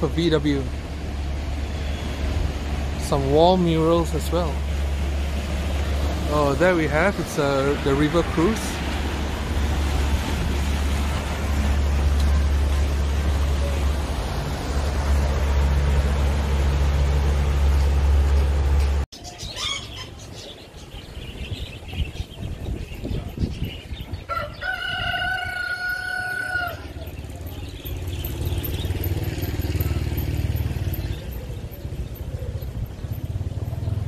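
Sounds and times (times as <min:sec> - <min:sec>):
boat motor running: 0:00.0 - 0:19.0
low wind rumble: 0:20.2 - 0:28.9.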